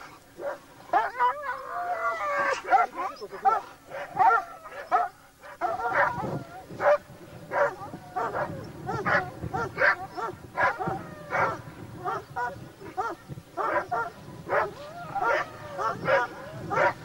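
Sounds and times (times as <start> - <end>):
dog barking: 2.4 - 17.0.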